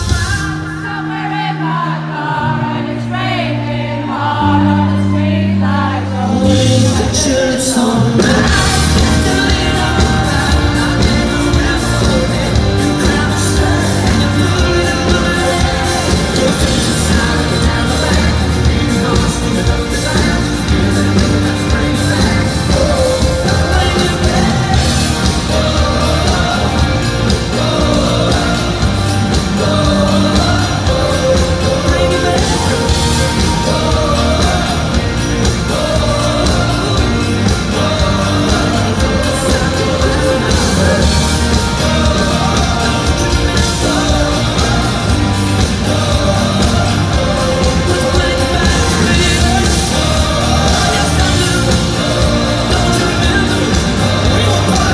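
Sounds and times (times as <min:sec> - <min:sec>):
live rock band playing: 0:00.0 - 0:54.9
person singing: 0:00.0 - 0:54.9.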